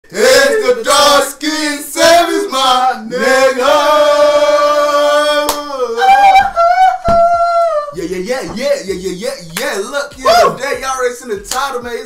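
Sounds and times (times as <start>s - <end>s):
men singing a chant: 0.1s - 6.6s.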